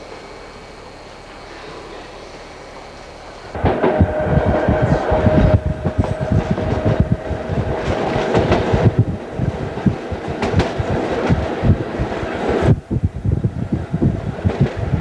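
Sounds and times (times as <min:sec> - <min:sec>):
electric train whine: 0:00.0 - 0:15.0
train wheels clacking over rail joints: 0:03.6 - 0:12.8.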